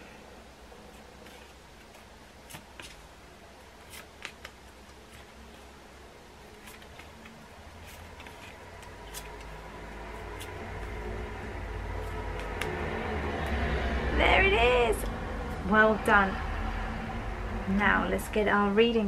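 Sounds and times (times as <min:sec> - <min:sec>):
flashcards flicking: 0:01.2 - 0:03.1, 0:03.8 - 0:05.7, 0:06.5 - 0:11.4, 0:12.0 - 0:13.6
low rumble: 0:09.8 - 0:18.8.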